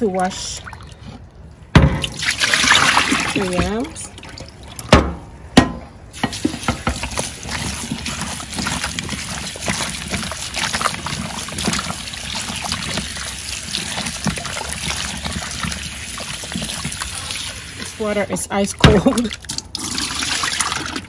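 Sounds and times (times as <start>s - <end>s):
water splashing and sloshing: 0.0s - 21.0s
tap water running: 2.0s - 5.0s, 6.2s - 21.0s
sharp knocks: 4.9s - 5.9s.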